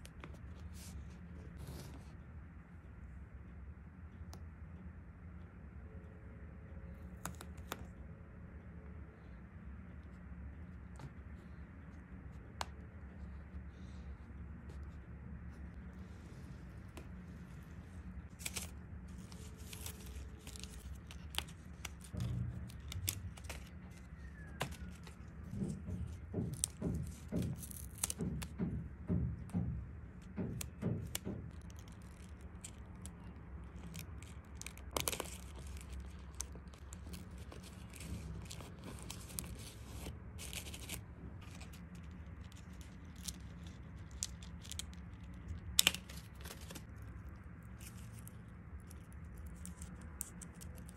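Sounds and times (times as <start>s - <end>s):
low steady hum: 0.0s - 50.9s.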